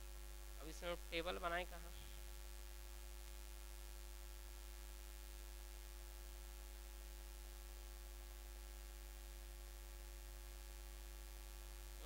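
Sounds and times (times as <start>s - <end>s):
faint hiss: 0.0s - 8.3s
electrical mains hum: 0.0s - 12.0s.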